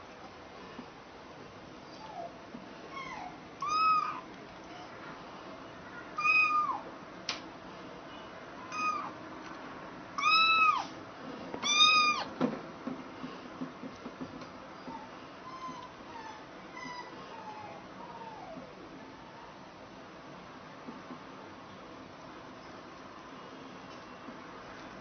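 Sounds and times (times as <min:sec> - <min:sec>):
cat meowing: 0:03.0 - 0:04.2, 0:06.2 - 0:06.8, 0:08.7 - 0:09.2, 0:10.2 - 0:10.9, 0:11.6 - 0:12.3.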